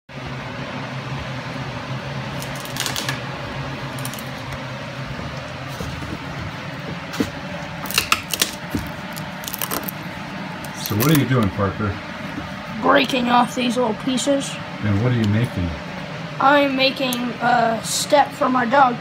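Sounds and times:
steady low hum: 0.1 - 19.0
wood slivers snapping off: 2.4 - 3.2, 7.8 - 10.0, 10.7 - 11.3.

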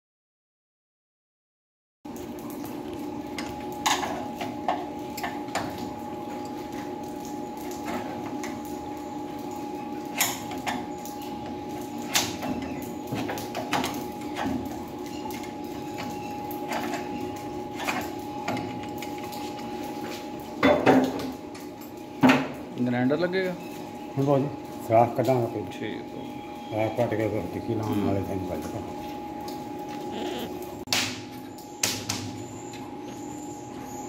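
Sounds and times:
steady hum: 25.8 - 33.5.

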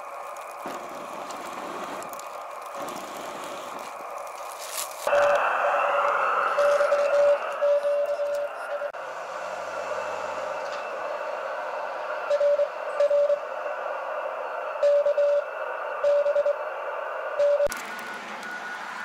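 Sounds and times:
radio band hiss: 0.0 - 13.5
morse code beeps: 6.6 - 8.9.

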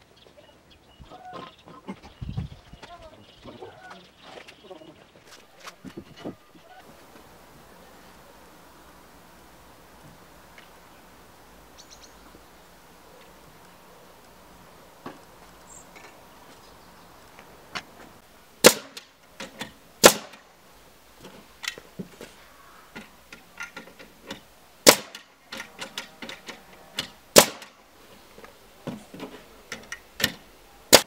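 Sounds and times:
nail gun firing: 18.6 - 20.4, 24.8 - 25.7, 27.0 - 27.8.

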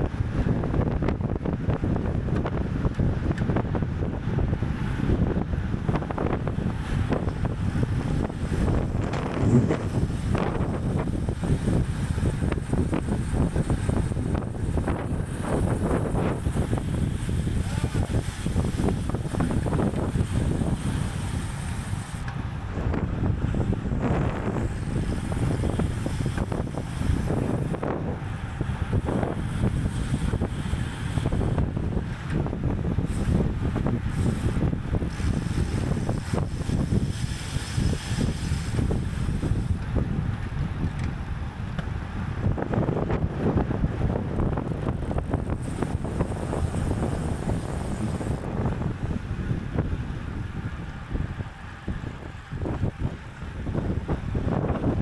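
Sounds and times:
wind buffeting microphone: 0.0 - 55.0
bicycle clicks and knocks: 2.0 - 3.8, 5.9 - 23.6, 24.5 - 27.8, 28.7 - 43.2.

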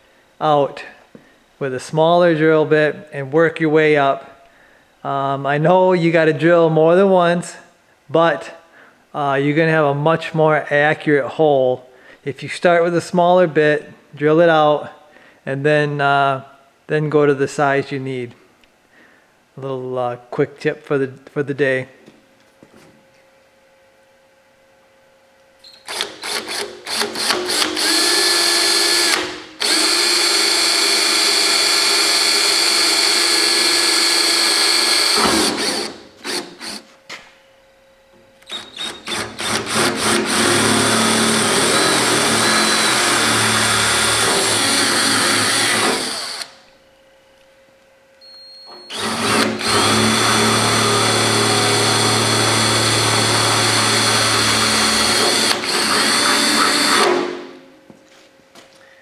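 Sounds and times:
cordless drill boring through steel: 25.8 - 36.8, 38.5 - 46.6, 48.9 - 57.2.

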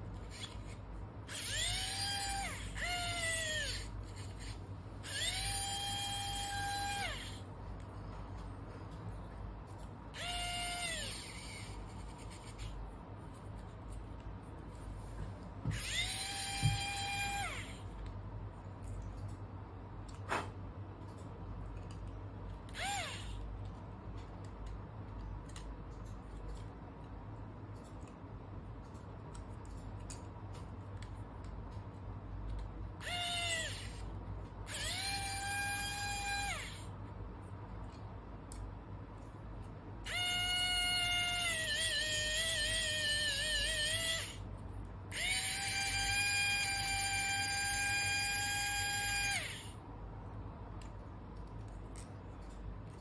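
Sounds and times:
electric screwdriver whining: 15.7 - 17.7, 22.7 - 23.3, 33.0 - 34.0, 45.1 - 49.7
electric screwdriver whirring: 15.7 - 17.7, 22.7 - 23.3, 33.0 - 34.0.

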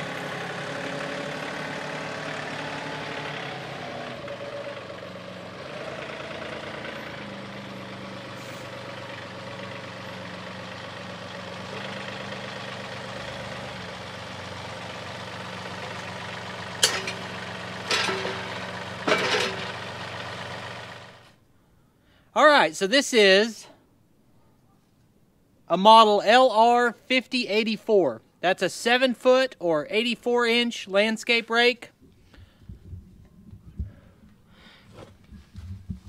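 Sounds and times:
tractor diesel engine running: 0.0 - 21.4, 32.2 - 36.0
metal rake clanking: 15.9 - 20.8.

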